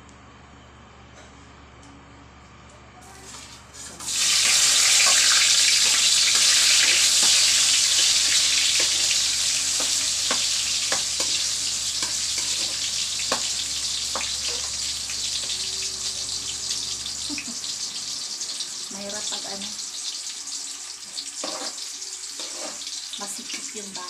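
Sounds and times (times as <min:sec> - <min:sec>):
food sizzling in hot oil: 0:03.2 - 0:24.0
metal spatula scraping wok: 0:03.8 - 0:13.5, 0:21.4 - 0:23.0.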